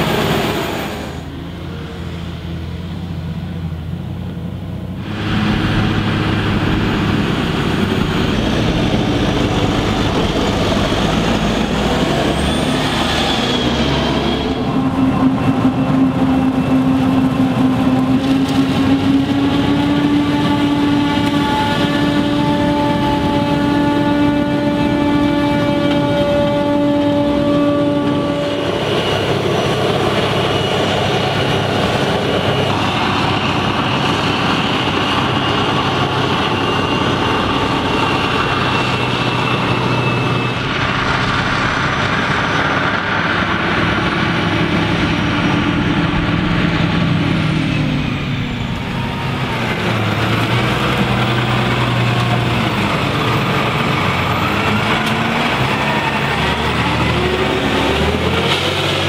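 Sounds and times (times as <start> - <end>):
high machine whine: 28.4 - 56.5.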